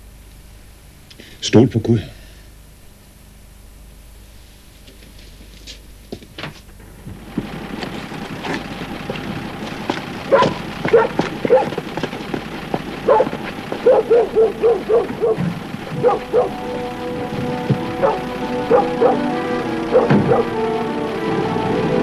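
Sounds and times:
dog barking: 10.3 - 11.9, 13.0 - 16.7, 18.0 - 19.3, 19.9 - 20.6.

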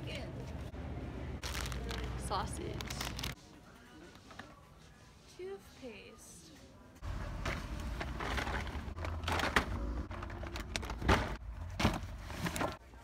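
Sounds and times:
shopping bags rustling: 1.4 - 3.4, 7.1 - 12.8.

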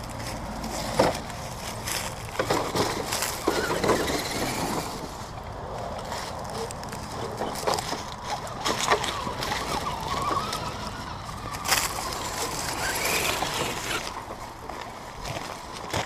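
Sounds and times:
rustling and crunching leaves: 0.0 - 16.0
motor whine: 8.2 - 14.2.

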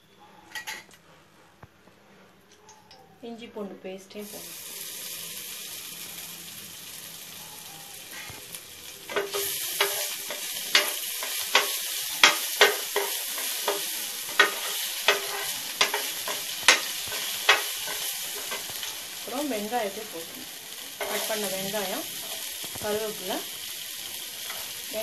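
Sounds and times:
paste sizzling in hot oil: 4.2 - 25.0
spatula scraping a pan: 9.1 - 19.2.

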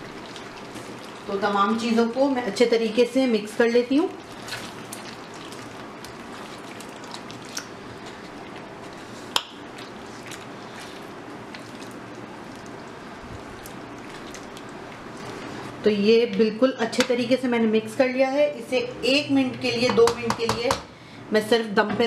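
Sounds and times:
wet squelching of stirred gravy: 0.0 - 15.8
spatula tapping pan: 19.9 - 20.8.

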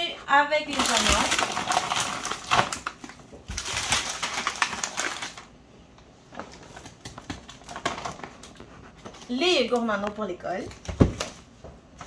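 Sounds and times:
plastic packaging crinkling: 0.4 - 5.6, 6.2 - 10.0.

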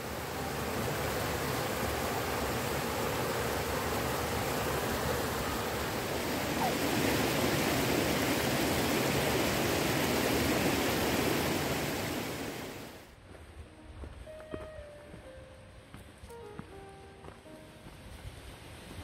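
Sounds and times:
steady rushing noise: 0.0 - 13.2.

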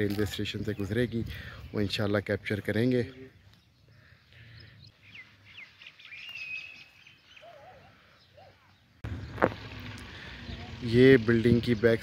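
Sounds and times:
birds whistling calls: 3.0 - 12.0
lower sliding bird calls: 3.8 - 10.8.

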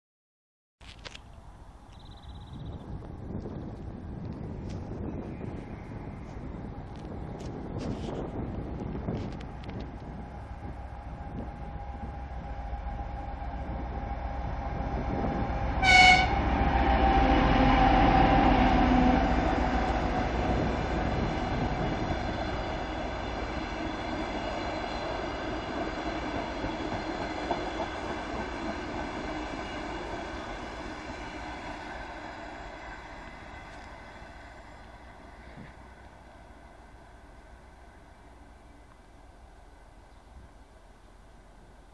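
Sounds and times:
locomotive horn blast: 12.1 - 20.7.

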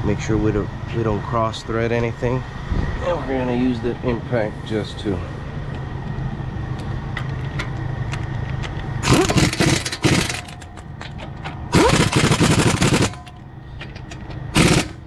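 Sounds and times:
pneumatic impact wrench rattling: 9.0 - 15.0.

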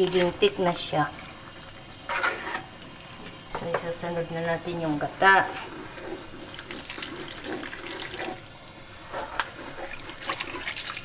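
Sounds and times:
stew simmering: 0.0 - 11.0
liquid pouring into a wok: 6.2 - 11.0.

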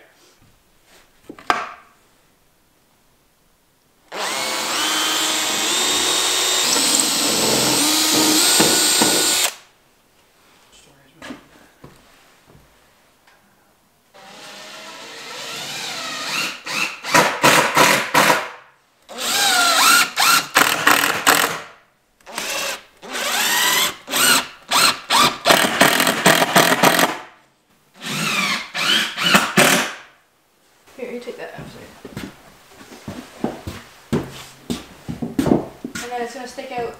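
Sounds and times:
cordless drill into wood: 4.1 - 9.6, 14.2 - 18.4, 19.1 - 21.6, 22.3 - 27.2, 28.0 - 30.0.

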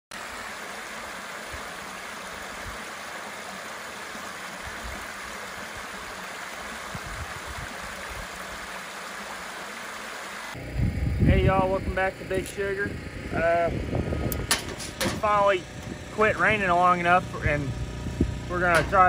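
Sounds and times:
creek splashing over rocks: 0.1 - 10.6.

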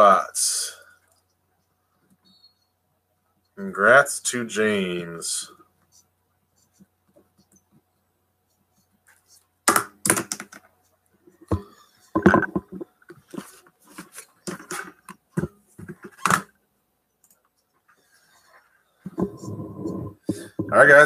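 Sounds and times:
handling knocks and rustles: 11.4 - 16.5.

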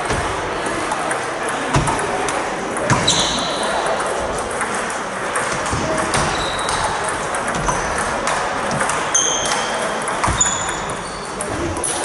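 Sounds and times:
table tennis balls clicking: 0.1 - 12.0.

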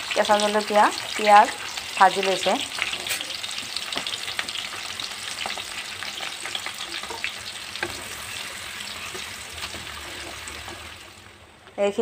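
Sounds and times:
vegetables sizzling in hot oil: 0.0 - 12.0
wooden spatula stirring: 2.8 - 11.1.

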